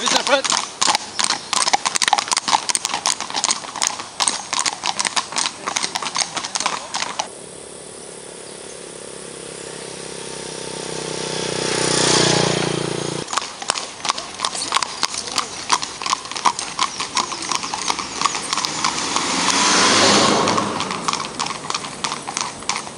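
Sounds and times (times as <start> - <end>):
hooves clip-clopping on asphalt: 0.0 - 7.3, 11.4 - 22.9
steady hum: 7.3 - 11.3.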